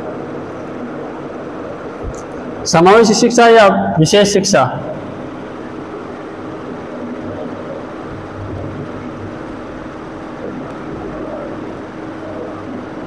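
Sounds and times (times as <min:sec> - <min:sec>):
background hum and hiss: 0:00.0 - 0:13.0
faint low hum: 0:00.0 - 0:13.0.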